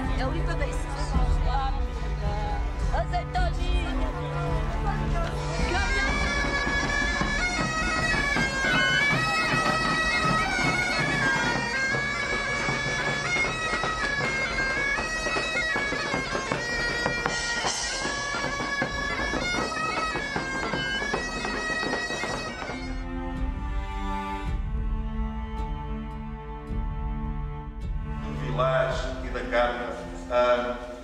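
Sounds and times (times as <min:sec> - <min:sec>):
large drum beating: 0:00.0 - 0:25.0
bagpipe melody: 0:00.0 - 0:31.0.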